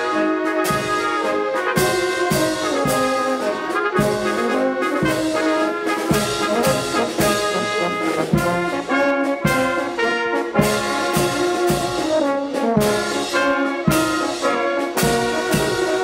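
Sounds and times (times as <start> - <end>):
brass band playing: 0.0 - 16.0.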